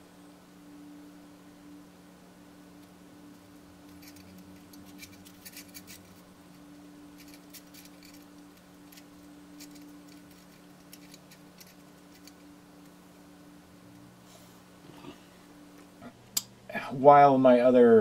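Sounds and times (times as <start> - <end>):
steady low hum: 0.0 - 18.0
porcelain fragments clicking together: 3.8 - 12.9.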